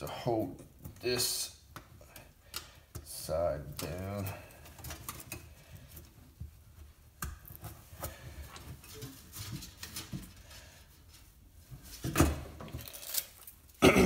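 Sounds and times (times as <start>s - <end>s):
hands fitting velcro strap: 12.8s - 13.7s.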